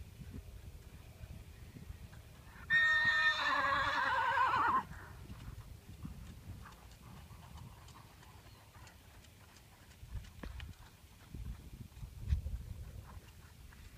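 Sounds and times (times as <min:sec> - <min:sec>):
horse whinnying: 0:02.7 - 0:04.9
faint hoofbeats on sand: 0:04.1 - 0:13.9.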